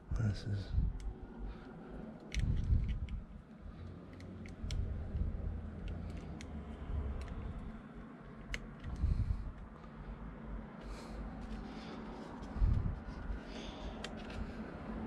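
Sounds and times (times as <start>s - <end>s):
light clicks: 0.9s - 10.0s.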